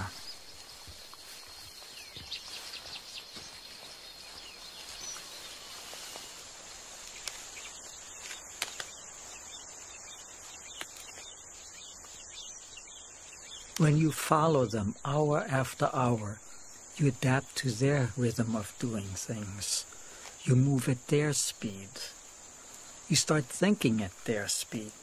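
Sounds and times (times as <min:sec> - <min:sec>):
bird chirps: 0:00.0 - 0:25.0
faint ticks: 0:07.0 - 0:07.6.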